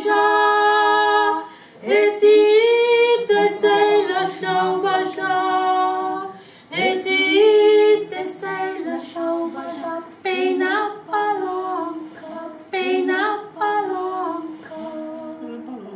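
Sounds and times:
women singing in harmony: 0.0 - 15.9
singers breathing: 1.4 - 1.8, 6.3 - 6.7.

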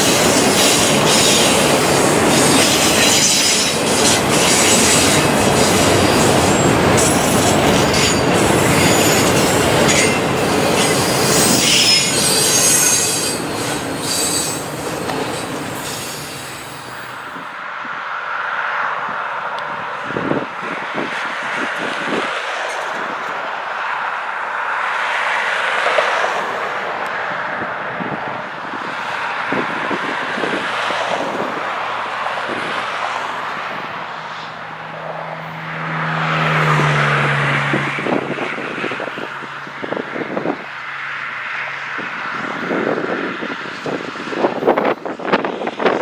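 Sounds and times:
vehicles passing: 0.0 - 46.0
wind buffeting microphone: 19.0 - 23.3, 27.3 - 33.9, 37.5 - 40.7, 42.0 - 46.0.

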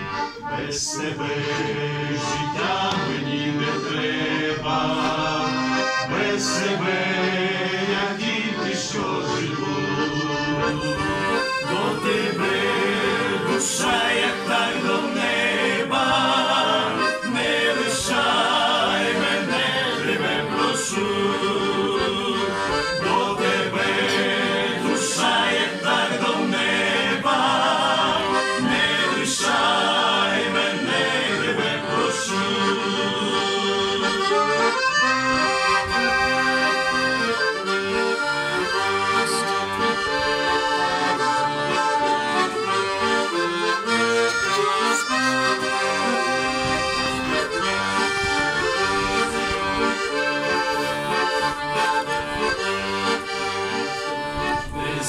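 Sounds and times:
accordion playing hymn melody: 0.0 - 55.0.

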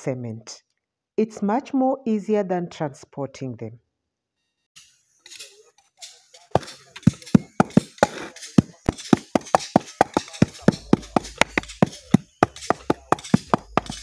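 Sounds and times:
wooden tamper knocking: 6.6 - 14.0.

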